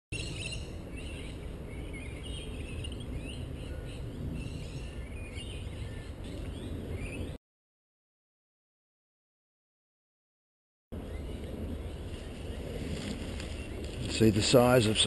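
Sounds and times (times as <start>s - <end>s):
birds chirping: 0.1s - 7.4s, 11.0s - 15.0s.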